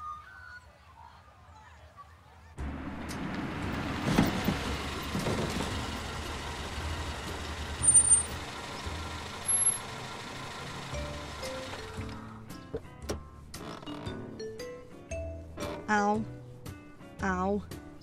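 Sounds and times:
car engine hum: 0:02.6 - 0:13.1
short high squeaks: 0:07.8 - 0:08.4.

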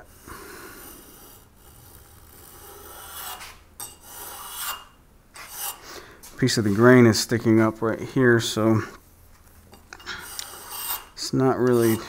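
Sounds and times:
block plane shaving wood: 0:00.8 - 0:04.8, 0:10.3 - 0:12.0.

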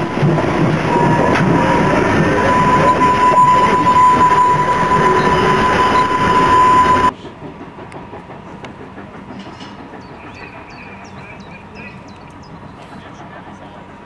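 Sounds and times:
steady high-pitched tone: 0:00.0 - 0:07.1
train wheels rumbling over rail joints: 0:00.0 - 0:14.0.

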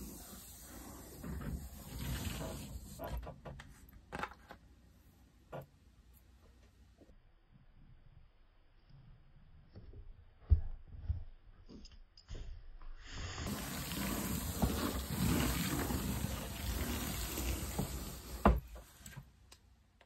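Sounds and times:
palm rubbing puzzle surface: 0:13.5 - 0:19.2.

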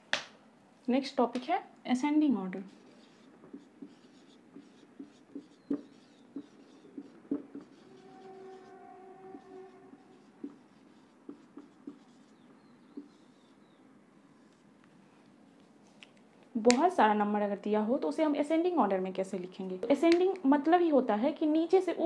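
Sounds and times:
marker writing on whiteboard: 0:02.5 - 0:14.7.

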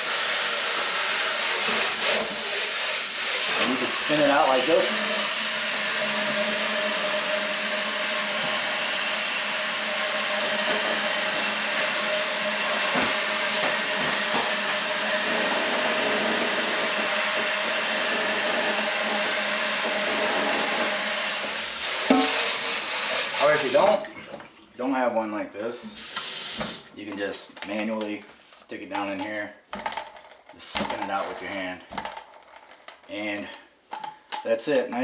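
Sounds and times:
faucet sprayer water hissing: 0:00.0 - 0:23.9, 0:26.0 - 0:26.8.

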